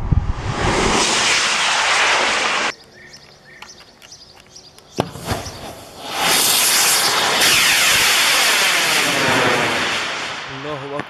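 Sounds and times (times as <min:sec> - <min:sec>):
rocket launch rushing hiss: 0:00.0 - 0:02.7, 0:05.0 - 0:11.0
faint bird chirps: 0:02.7 - 0:05.6.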